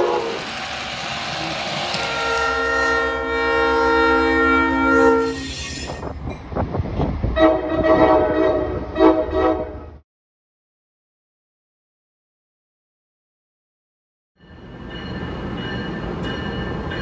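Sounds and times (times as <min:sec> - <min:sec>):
train air horn: 0:00.0 - 0:00.5, 0:01.9 - 0:05.9, 0:07.4 - 0:09.9
rail noise: 0:00.0 - 0:10.0, 0:14.4 - 0:17.0.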